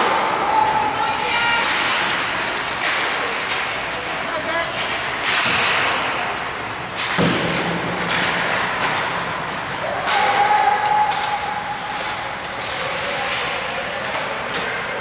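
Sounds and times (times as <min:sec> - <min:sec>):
hockey sticks knocking puck: 0:00.0 - 0:15.0
skates hissing on ice: 0:01.2 - 0:03.5, 0:11.7 - 0:14.1
puck thud against boards: 0:04.8 - 0:06.3, 0:06.9 - 0:11.4.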